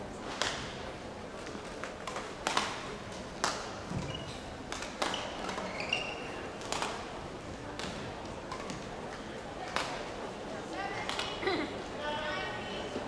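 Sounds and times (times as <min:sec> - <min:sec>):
racket hitting shuttlecock: 0:02.0 - 0:03.7, 0:04.7 - 0:05.6, 0:06.6 - 0:07.0
shoe squeaks on court floor: 0:03.9 - 0:06.5.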